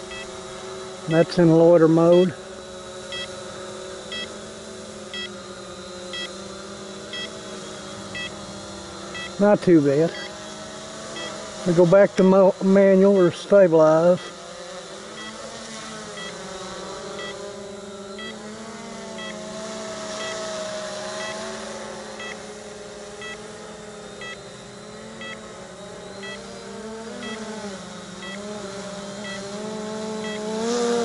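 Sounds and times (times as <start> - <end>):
quadcopter motors humming: 0.0 - 31.0
faint short beeps: 3.1 - 3.3, 6.1 - 6.4, 7.1 - 8.4, 9.1 - 9.4, 10.1 - 10.3, 16.2 - 16.4, 23.2 - 23.4, 24.2 - 24.4, 25.2 - 25.4, 26.2 - 26.4, 28.2 - 28.4.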